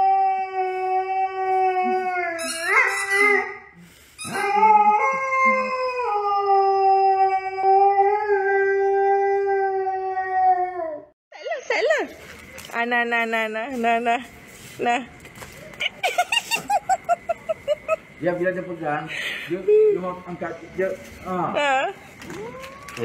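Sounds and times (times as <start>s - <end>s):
dog howling: 0.0s - 3.5s, 4.2s - 11.1s, 22.2s - 23.0s.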